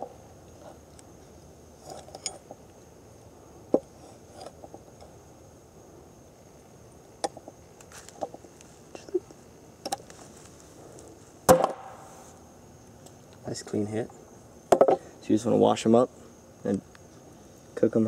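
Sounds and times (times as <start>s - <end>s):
knocks on wooden board: 14.7s - 15.0s.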